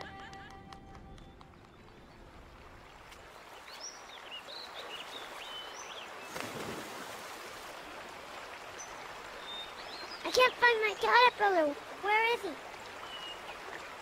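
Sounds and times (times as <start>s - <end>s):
creek water running over rocks: 1.7s - 14.0s
water splash: 6.2s - 8.0s.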